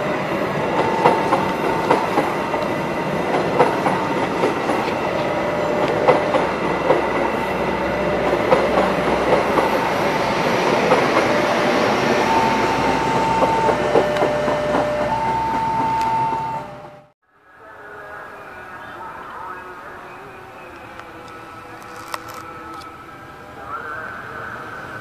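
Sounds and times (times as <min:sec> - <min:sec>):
high-pitched squeals: 0:00.0 - 0:17.0
train passing at speed: 0:00.0 - 0:25.0
wheels clacking over rail joints: 0:00.2 - 0:16.6.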